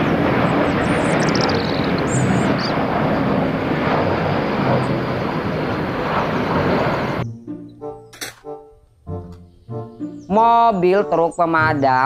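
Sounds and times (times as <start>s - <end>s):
jet airliner engines rushing: 0.0s - 7.3s.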